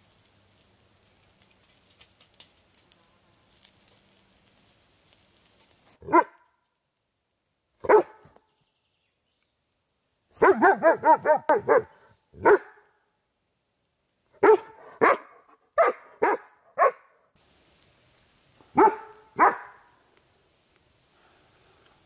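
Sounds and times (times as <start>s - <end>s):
dog barking: 6.0s - 6.5s, 7.8s - 8.4s, 10.4s - 12.9s, 14.4s - 17.2s, 18.7s - 19.9s.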